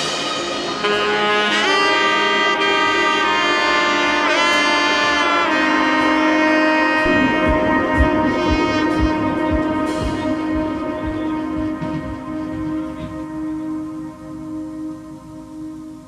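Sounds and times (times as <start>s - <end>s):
sustained melody of held notes: 0.0s - 16.0s
steady drum beat: 7.0s - 13.3s.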